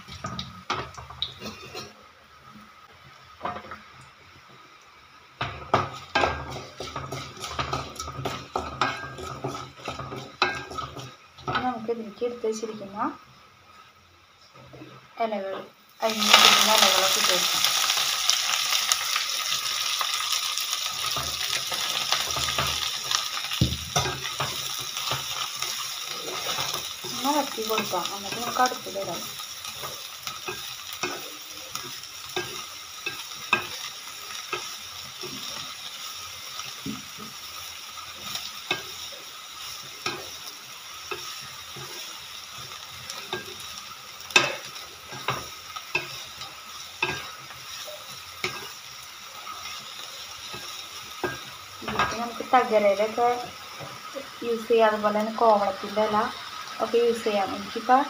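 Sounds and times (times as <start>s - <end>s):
greens sizzling in oil: 0.0s - 58.0s
spatula scraping and tapping pan: 5.4s - 12.0s, 20.9s - 54.0s.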